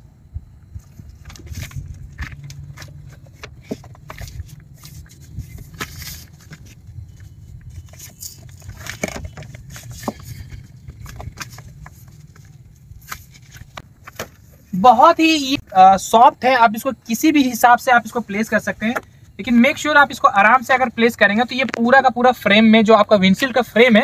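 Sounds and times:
steady low rumble: 0.0 - 17.2
sunshade rustling and crackling: 0.7 - 15.7.

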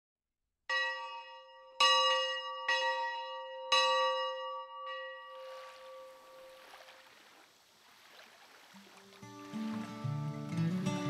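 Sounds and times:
bronze bell ringing: 0.7 - 6.6.

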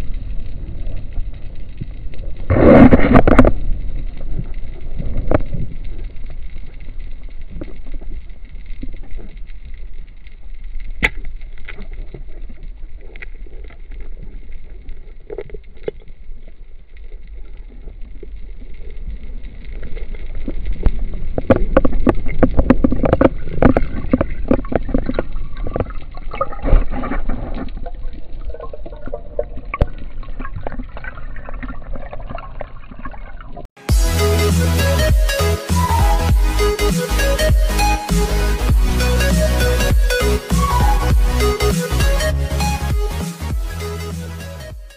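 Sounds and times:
water churning underwater: 0.0 - 33.9.

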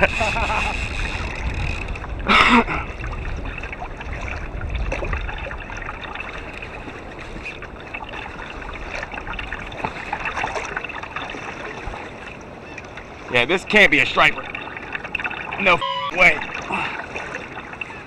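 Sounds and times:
water lapping against kayak hull: 0.0 - 18.0.

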